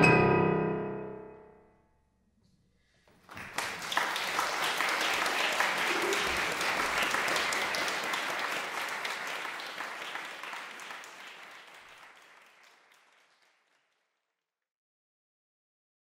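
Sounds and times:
audience applauding: 3.1 - 14.1.

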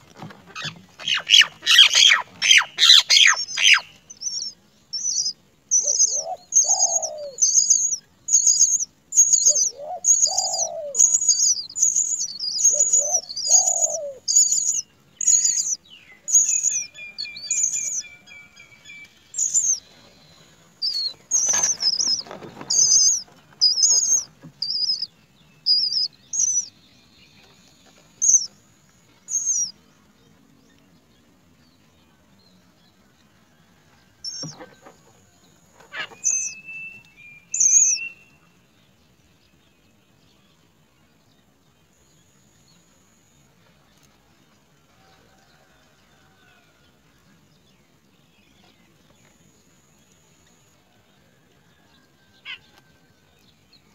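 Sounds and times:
rustling and wing flutter: 0.0 - 3.8, 19.0 - 24.6
nestlings begging calls: 0.5 - 18.1, 19.3 - 19.8, 20.8 - 26.7, 28.2 - 28.5, 29.3 - 29.7, 34.2 - 34.6, 35.9 - 36.6, 37.6 - 38.0
rapid bird trill: 0.6 - 18.1, 19.4 - 19.8, 20.8 - 25.1, 35.9 - 36.6.

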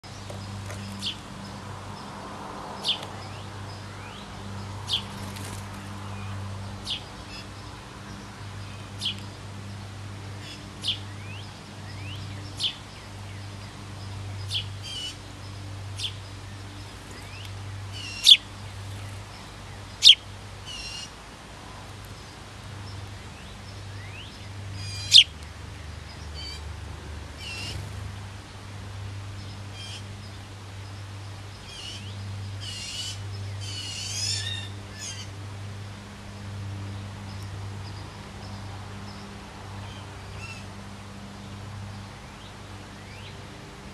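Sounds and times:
sparrow chirping: 0.1 - 1.6, 2.8 - 9.8, 10.4 - 21.1, 23.4 - 26.6.

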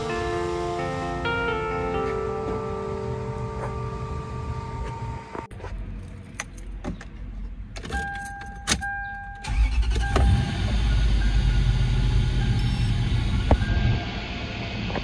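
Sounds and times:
car engine starting and running: 0.0 - 15.0
electronic chime tone: 8.9 - 14.2.

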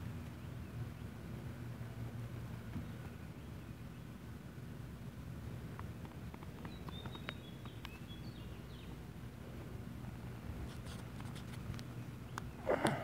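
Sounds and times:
high bird chirps: 6.6 - 8.9.

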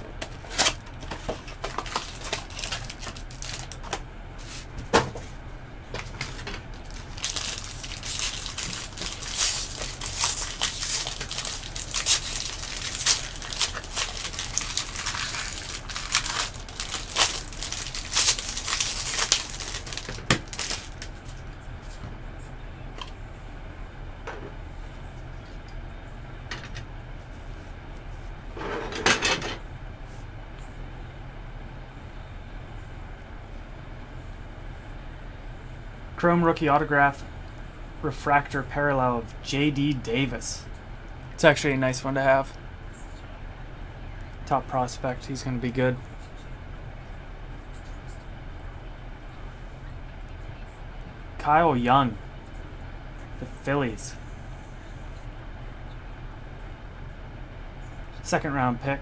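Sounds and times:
plastic packaging tearing and crinkling: 0.6 - 4.0, 6.1 - 21.4.

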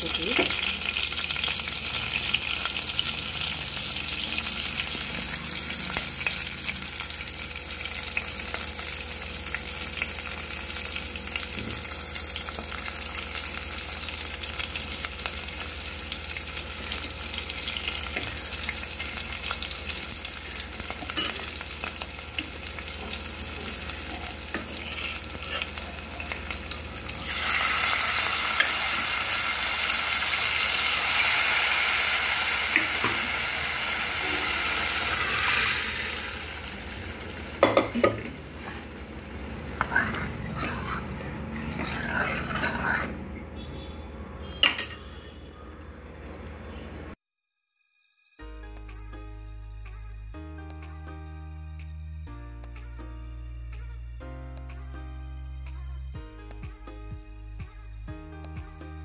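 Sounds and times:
spices sizzling in hot oil: 0.0 - 41.0.

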